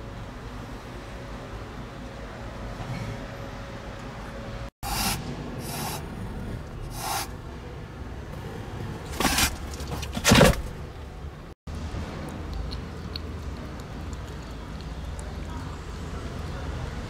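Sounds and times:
scraping on cardboard: 9.1 - 10.6.

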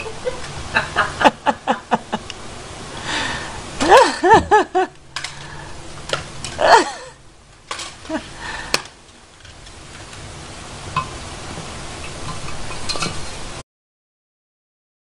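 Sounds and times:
high-pitched cries: 6.6 - 7.2.

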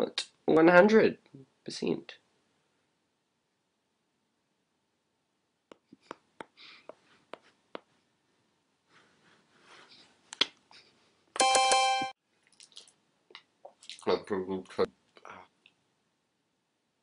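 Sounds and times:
soft rubbing: 6.9 - 11.2.

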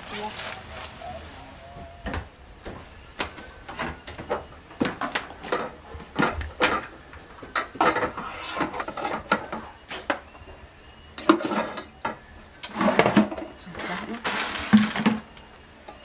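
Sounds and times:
rice paddle scraping pot: 7.7 - 9.8.

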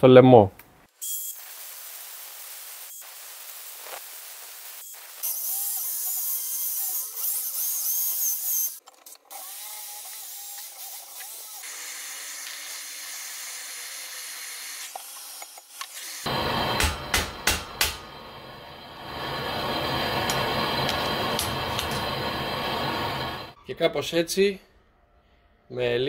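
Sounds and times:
rotary tool grinding whine: 15.6 - 23.6
blowtorch hissing: 16.2 - 23.6.

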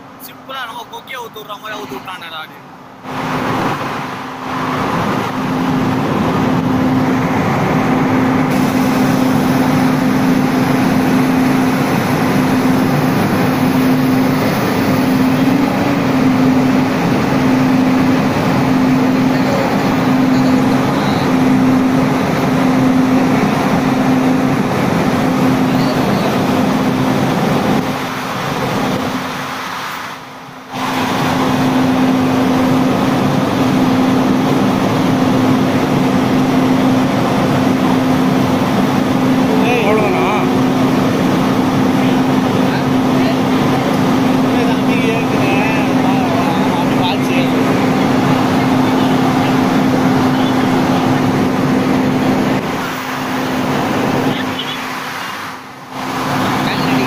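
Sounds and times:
locomotive engine running: 0.0 - 29.4, 30.5 - 57.0
pulsing hum: 3.0 - 28.1.

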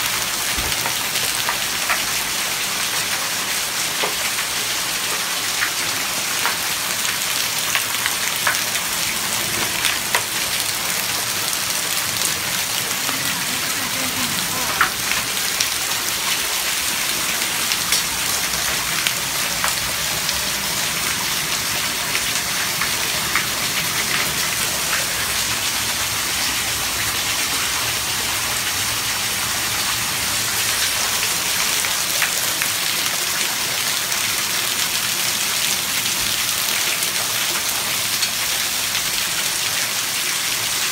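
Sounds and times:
hailstones ticking: 0.2 - 2.3
heavy rain hissing: 6.9 - 32.9.

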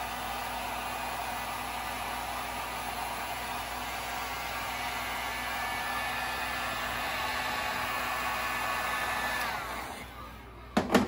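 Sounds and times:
heat gun blowing with whine: 0.0 - 10.6.

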